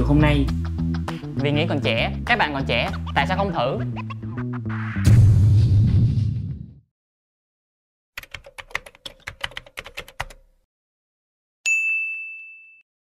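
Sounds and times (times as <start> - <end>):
keyboard typing: 8.2 - 10.5
bright ding: 11.7 - 12.8.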